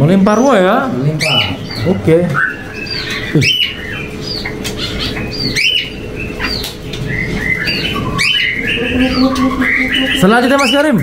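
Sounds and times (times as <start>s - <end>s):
songbirds chirping: 0.0s - 11.0s
steady low hum: 0.0s - 11.0s.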